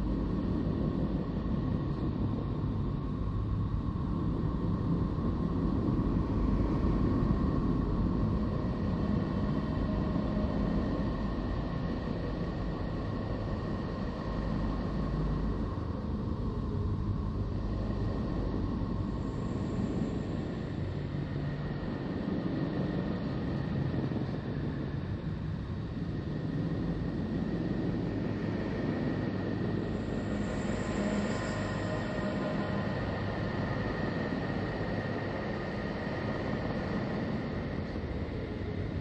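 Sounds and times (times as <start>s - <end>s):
low rumbling drone: 0.0s - 39.0s.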